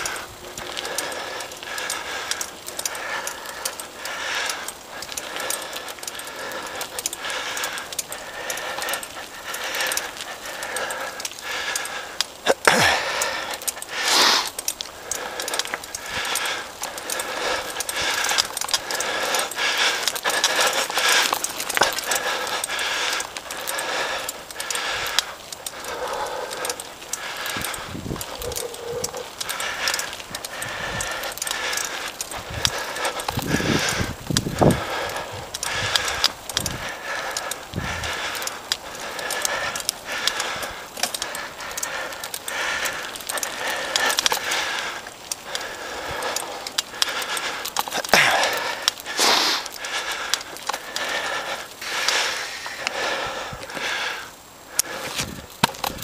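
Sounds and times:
mountain bike rattling over rocks: 0.0 - 56.0.

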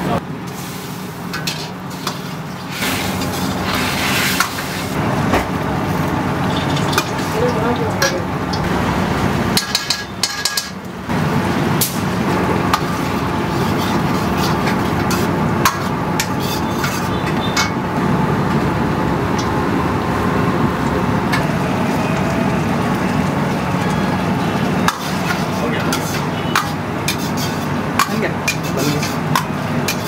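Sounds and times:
metal ladle scraping a wok: 0.5 - 5.0, 12.7 - 17.7, 24.9 - 30.0.

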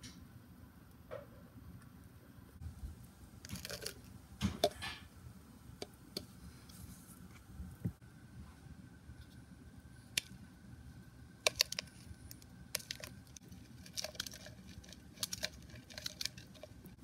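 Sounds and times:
plastic cups clicking: 3.4 - 5.0, 11.4 - 16.9
plastic rustling: 11.4 - 17.0.

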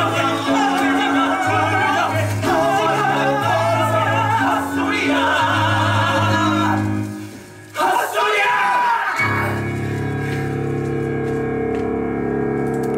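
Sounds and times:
man singing wavering voice: 0.0 - 7.1.

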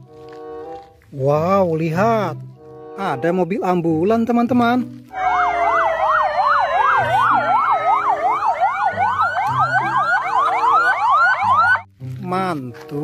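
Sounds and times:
ambulance siren wailing: 5.1 - 11.9.

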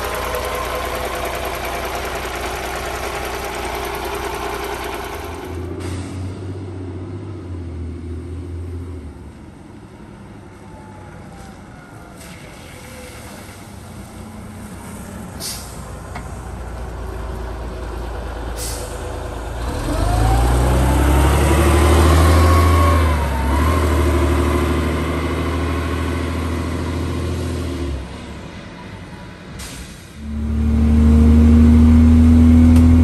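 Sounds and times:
bus diesel engine driving past: 0.0 - 33.0
short air hisses: 14.8 - 16.0, 18.6 - 19.0, 29.6 - 30.2
engine whine rising in pitch: 19.6 - 27.8, 30.2 - 33.0.

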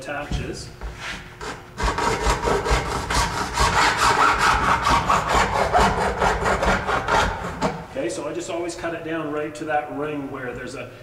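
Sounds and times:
hacksaw cutting plastic: 1.4 - 7.8.

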